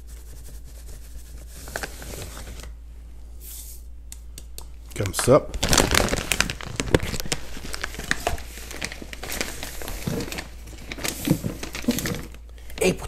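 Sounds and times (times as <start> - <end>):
plastic bag crinkling: 5.0 - 13.0.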